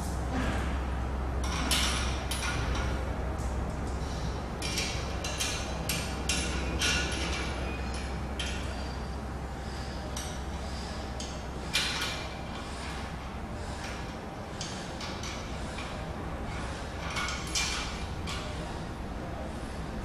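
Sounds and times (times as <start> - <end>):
low steady hum: 0.0 - 20.0.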